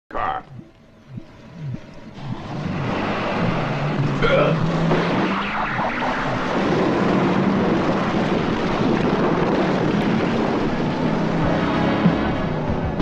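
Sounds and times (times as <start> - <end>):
low engine hum: 0.5 - 13.0
tyre and wind noise: 6.4 - 13.0.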